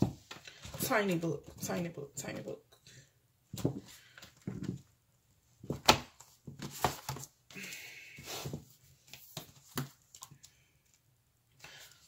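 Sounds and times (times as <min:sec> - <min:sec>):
paper rustling: 0:05.6 - 0:07.4.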